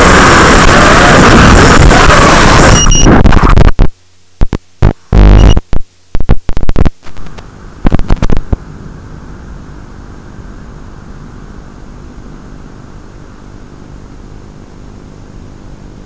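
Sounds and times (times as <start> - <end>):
drone crashing through branches: 0.0 - 2.7
drone motor noise: 0.0 - 3.8.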